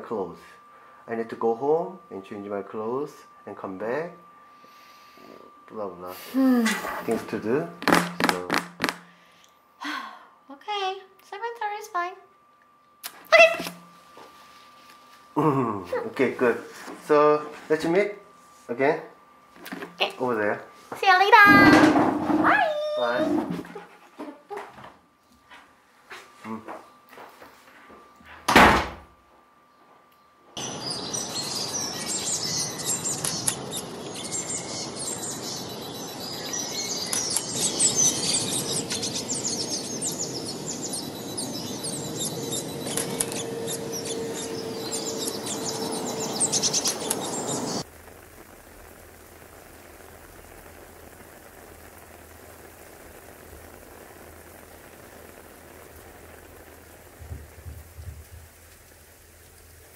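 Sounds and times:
rain hissing: 3.1s - 10.0s, 19.6s - 23.8s, 30.6s - 59.9s
door shutting: 21.4s - 23.7s, 28.3s - 29.1s
birds chirping: 29.8s - 47.8s.

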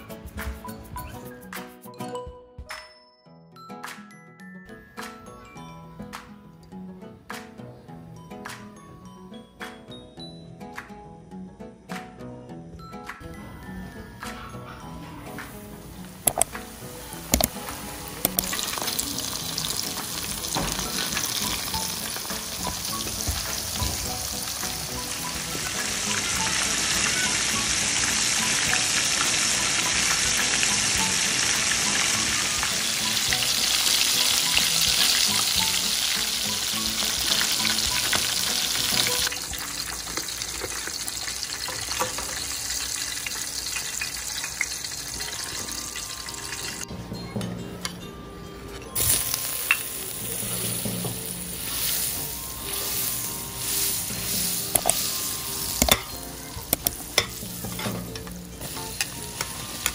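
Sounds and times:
butter sizzling in a wok: 15.6s - 46.8s, 49.0s - 59.9s
food deep-frying in oil: 16.2s - 46.9s, 49.0s - 59.9s
spatula clicking against metal: 55.8s - 56.1s.

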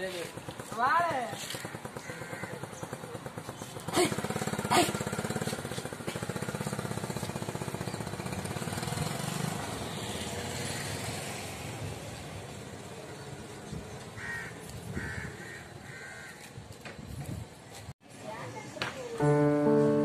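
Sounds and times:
motorcycle engine pulling away: 0.2s - 12.8s, 19.2s - 20.0s.

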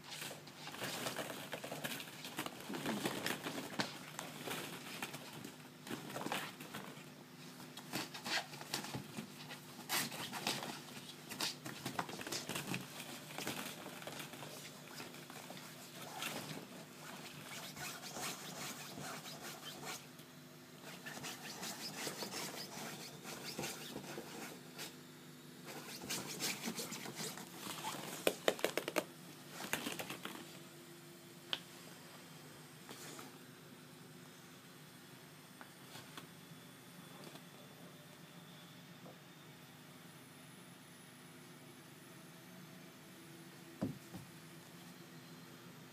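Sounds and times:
plastic balls clicking and rustling: 28.0s - 30.4s.

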